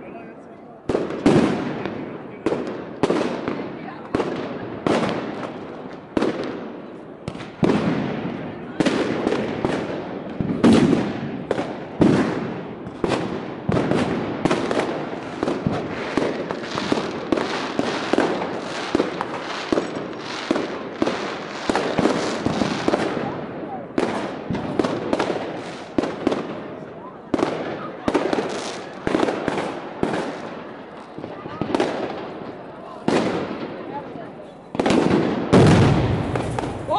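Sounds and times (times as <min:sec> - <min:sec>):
fireworks and firecrackers banging: 0:00.0 - 0:36.9.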